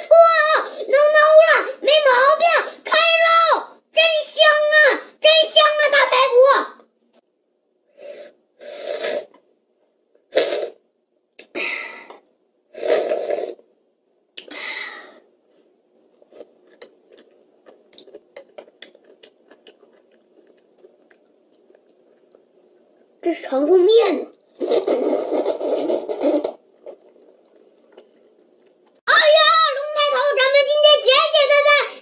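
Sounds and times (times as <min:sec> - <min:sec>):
child slurping noodles: 0:08.0 - 0:09.4, 0:10.3 - 0:10.8, 0:11.5 - 0:13.7, 0:24.5 - 0:27.2
soft clicking chewing: 0:16.0 - 0:23.2, 0:26.7 - 0:29.0.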